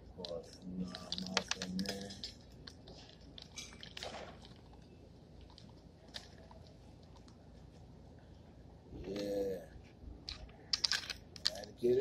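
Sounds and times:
peanuts clicking into bottle: 0.2s - 4.1s, 10.3s - 11.8s
paper packet rustling: 0.2s - 4.8s.

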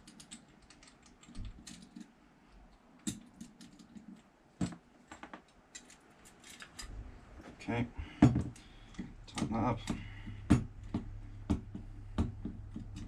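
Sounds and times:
small clicks of metal and plastic parts: 0.0s - 4.3s, 5.1s - 6.9s.

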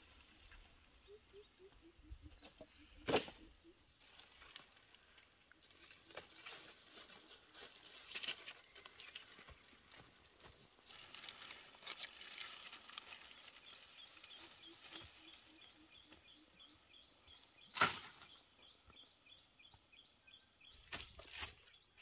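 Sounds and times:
bamboo poles rustling and scraping: 0.0s - 16.3s, 20.8s - 22.0s
footsteps in dry grass: 2.7s - 16.6s, 20.8s - 22.0s.

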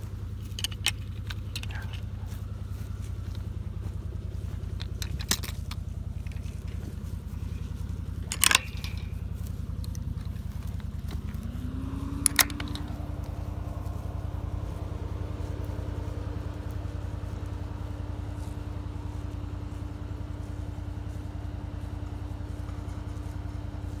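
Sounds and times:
engine running: 0.0s - 24.0s
metallic gate handle clicks: 8.2s - 9.2s.

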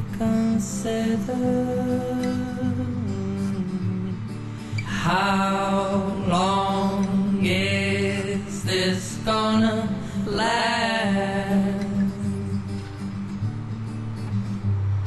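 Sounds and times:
person singing long phrases: 4.9s - 12.6s.

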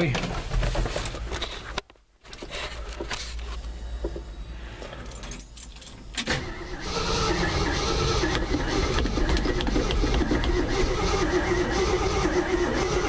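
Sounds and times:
keys jingling: 4.9s - 6.2s
engine starter cranking: 6.2s - 13.0s.

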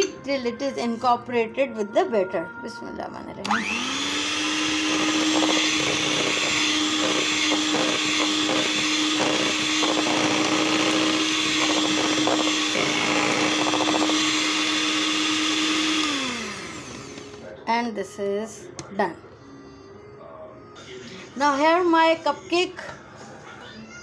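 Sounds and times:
electric hand mixer motor humming: 3.4s - 17.5s.

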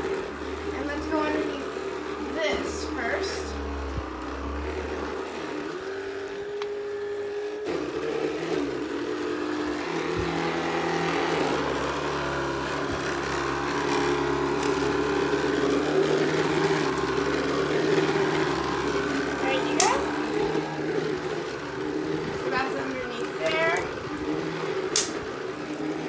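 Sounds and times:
stick vacuum running over carpet: 0.0s - 26.0s.

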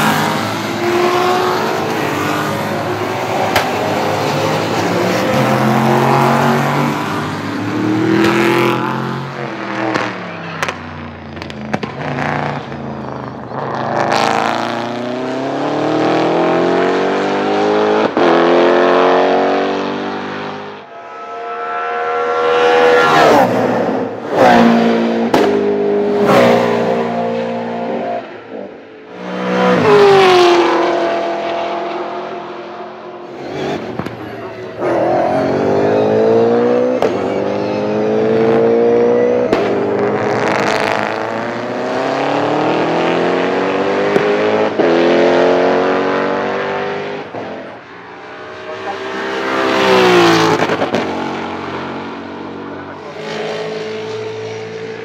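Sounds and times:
race car engines passing: 0.0s - 55.0s.

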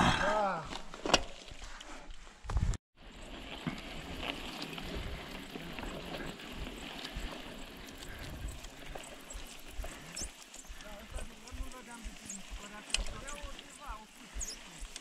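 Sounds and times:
bike tyres on trail: 0.4s - 15.0s
wind rumbling on microphone: 2.5s - 15.0s
small rattles and clicks: 3.2s - 15.0s.

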